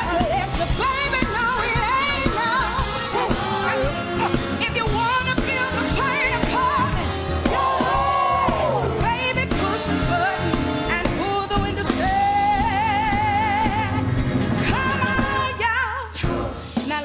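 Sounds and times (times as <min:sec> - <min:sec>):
band accompaniment: 0:00.0 - 0:17.0
woman singing show tune: 0:14.7 - 0:17.0.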